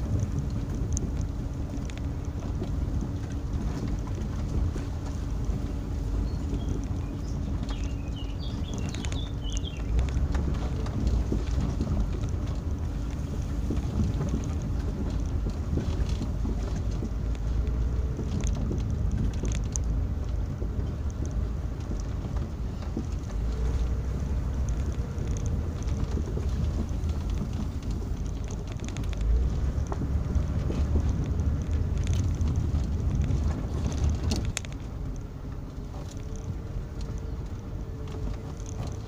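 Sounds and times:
rumble of engine and tyres: 0:00.0 - 0:39.0.

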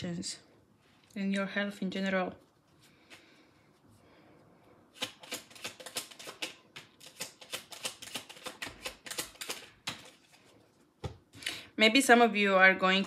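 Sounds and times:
cards being shuffled: 0:05.0 - 0:10.5.

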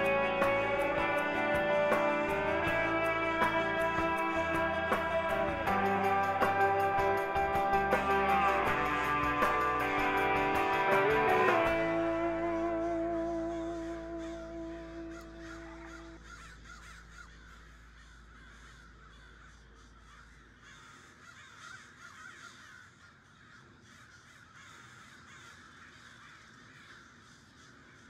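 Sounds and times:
guitar music: 0:00.0 - 0:16.4
crows cawing: 0:00.0 - 0:28.0.

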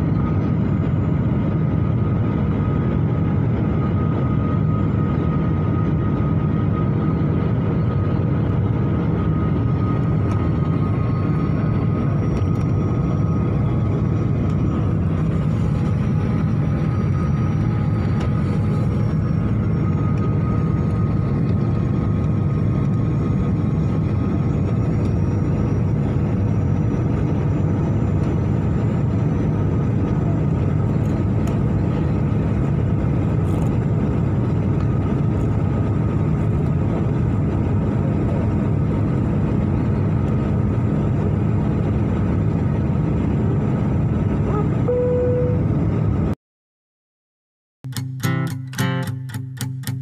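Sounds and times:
jet engine and airflow noise: 0:00.0 - 0:46.4
short faint tone: 0:44.4 - 0:45.8.

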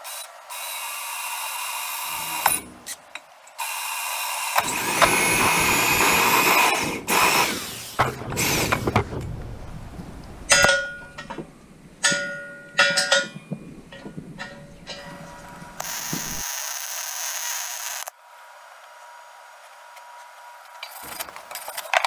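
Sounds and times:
cordless drill boring steel: 0:00.0 - 0:03.0, 0:03.6 - 0:08.8, 0:15.6 - 0:18.1
sharp metallic clanks: 0:08.0 - 0:16.4.

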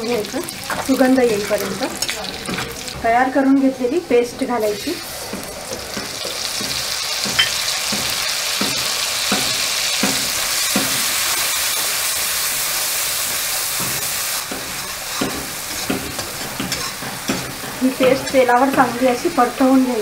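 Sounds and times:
paste sizzling in hot oil: 0:00.0 - 0:20.0
spatula scraping a pan: 0:13.7 - 0:19.0.

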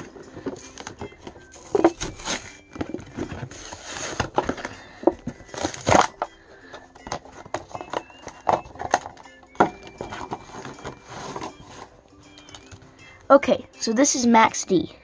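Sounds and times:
plastic packaging crackling: 0:00.0 - 0:12.8
cardboard ripping: 0:01.6 - 0:02.6, 0:03.4 - 0:04.7.

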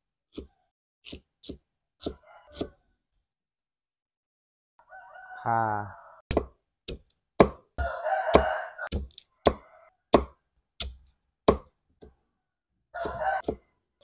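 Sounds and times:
knife chopping on wooden board: 0:00.3 - 0:02.7, 0:06.3 - 0:11.8, 0:13.0 - 0:13.7
rooster crowing: 0:02.1 - 0:02.8, 0:04.8 - 0:06.2, 0:07.8 - 0:10.0, 0:12.9 - 0:13.6.

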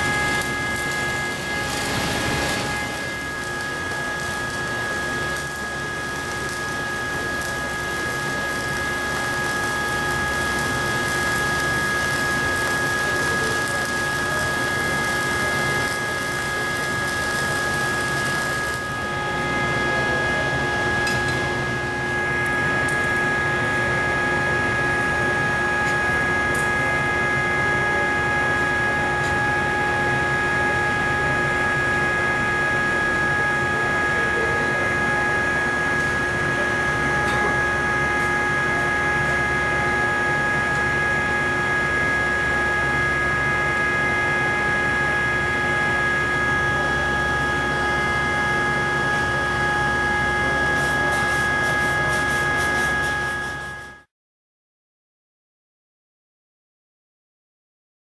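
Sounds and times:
welding equipment hiss: 0:00.0 - 0:24.0, 0:50.6 - 0:54.0
constant whining tones: 0:00.0 - 0:41.4.

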